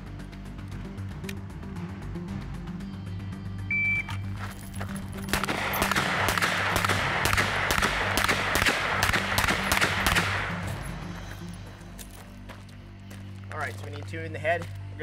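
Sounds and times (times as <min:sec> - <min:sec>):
pistol shots echoing: 0:05.3 - 0:10.9.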